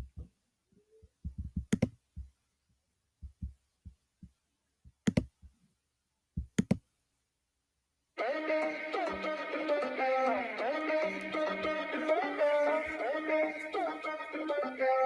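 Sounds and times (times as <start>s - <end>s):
soft low thumps: 1.2s - 2.3s, 3.2s - 5.0s
sharp clicks: 6.6s - 6.8s.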